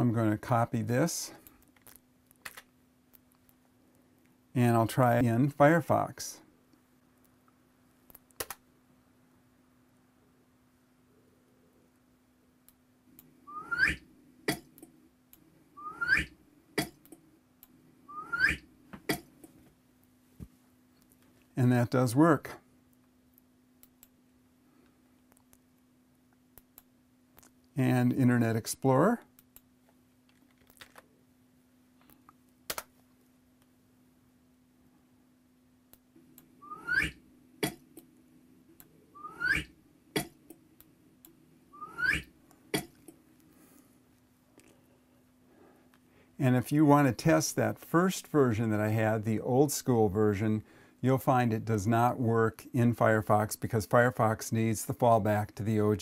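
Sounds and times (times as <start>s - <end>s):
rising whistle-like swoop: 13.5s - 14.0s, 15.8s - 16.3s, 18.1s - 18.6s, 36.6s - 37.2s, 39.2s - 39.7s, 41.8s - 42.3s.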